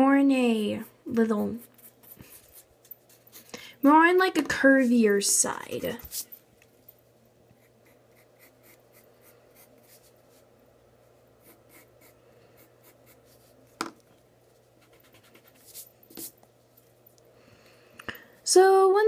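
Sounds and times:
pencil scratching on paper: 0.6 - 3.5, 7.6 - 10.4, 11.4 - 13.6, 14.8 - 16.3.

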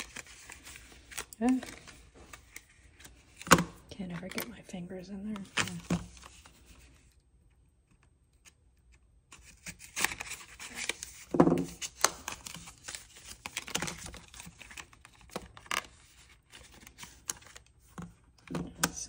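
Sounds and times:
cardboard crinkling: 0.0 - 4.6, 9.3 - 18.1.

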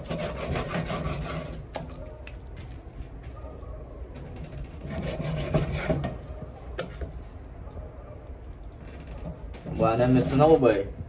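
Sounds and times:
knife cutting meat on wood: 0.0 - 2.0, 4.4 - 7.2, 8.9 - 10.4.

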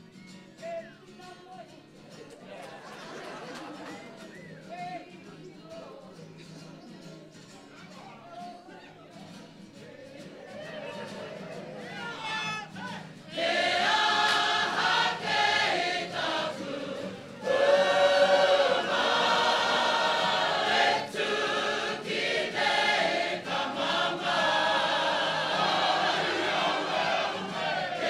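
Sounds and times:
group singing in chorus: 13.3 - 28.0.

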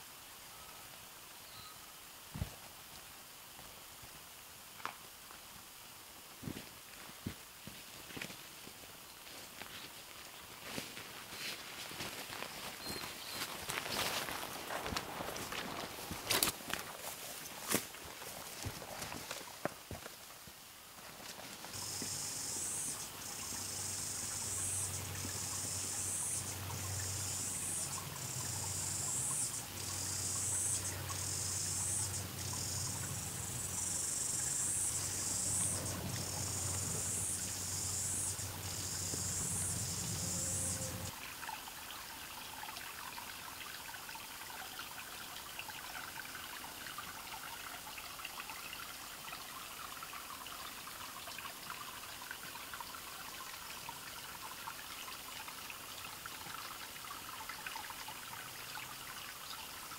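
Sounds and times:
small stream trickling: 0.0 - 59.9
insect chorus pulsing: 21.6 - 41.1
low steady hum: 21.8 - 41.1.

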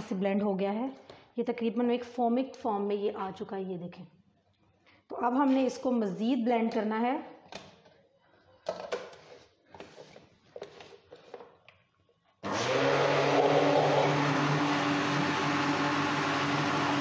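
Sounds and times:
blender motor running: 12.4 - 17.0.

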